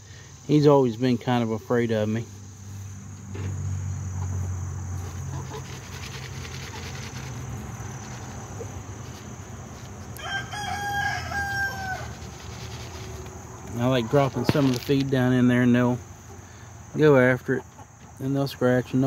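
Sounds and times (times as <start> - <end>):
rooster crowing: 10.1 - 12.9.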